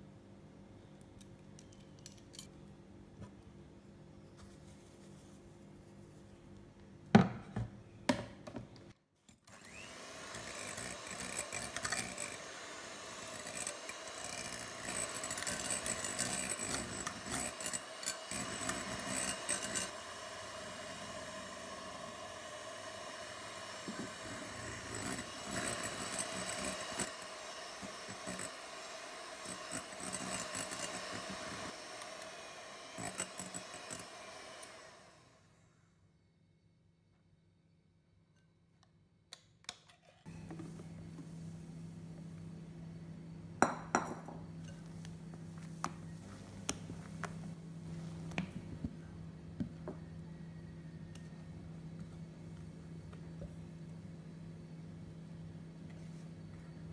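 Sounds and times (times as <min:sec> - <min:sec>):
electric hand mixer whipping: 0:09.5 - 0:35.5.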